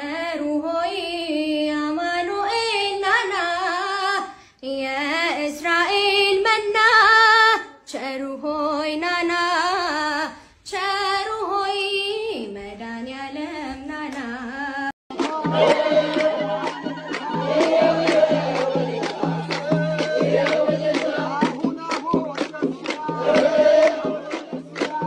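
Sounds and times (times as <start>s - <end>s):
woman singing a hymn: 0.0s - 18.9s.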